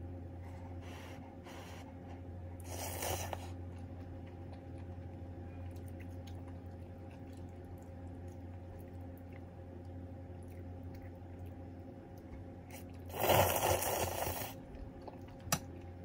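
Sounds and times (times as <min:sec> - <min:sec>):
low hum: 0:00.0 - 0:16.0
loud slurp: 0:12.8 - 0:14.6.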